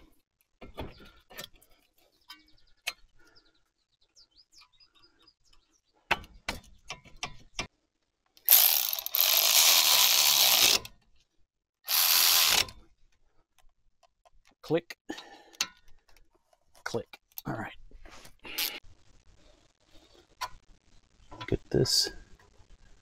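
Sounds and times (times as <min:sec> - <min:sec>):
ratchet wrench clicking: 0:08.4 - 0:10.8, 0:11.9 - 0:12.7.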